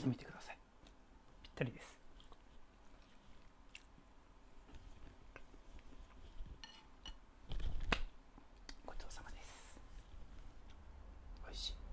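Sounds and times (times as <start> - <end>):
wooden spoons on ceramic plate: 6.4 - 7.2.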